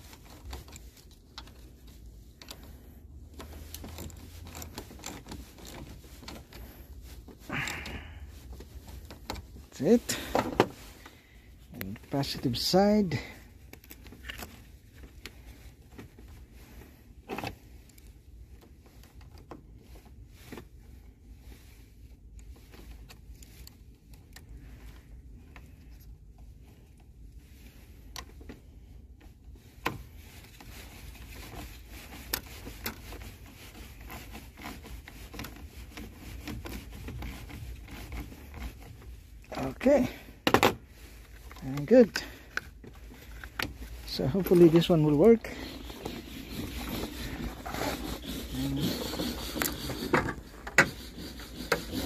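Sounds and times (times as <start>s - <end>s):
wrench clicking and scraping: 2.4s - 6.6s, 42.1s - 52.0s.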